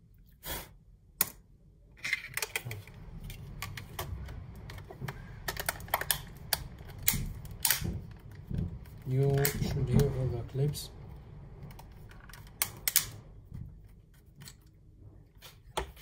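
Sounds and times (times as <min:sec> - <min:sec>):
plastic clips snapping: 0:02.3 - 0:08.5.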